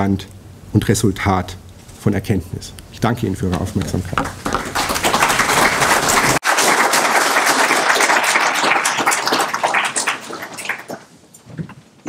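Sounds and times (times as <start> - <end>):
audience applauding: 3.9 - 11.1.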